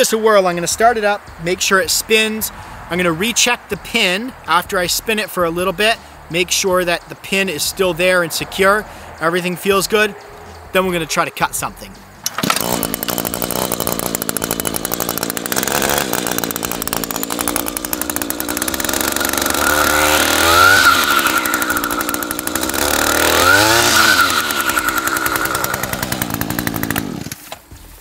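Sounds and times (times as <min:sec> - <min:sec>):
string trimmer engine revving: 0:09.7 - 0:27.7.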